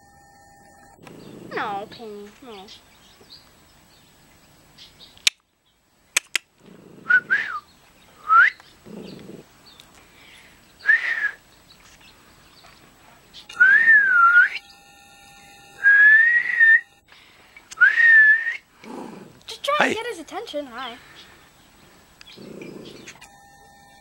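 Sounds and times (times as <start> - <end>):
sharp clicks: 6.2 - 6.5
person whistling: 7.1 - 7.6, 8.2 - 8.6, 10.8 - 11.4, 13.6 - 14.6, 15.8 - 16.9, 17.8 - 18.6.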